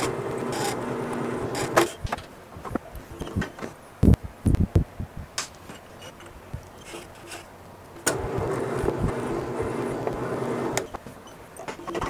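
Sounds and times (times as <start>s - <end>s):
drill press motor running: 0.0s - 1.9s, 8.1s - 11.0s.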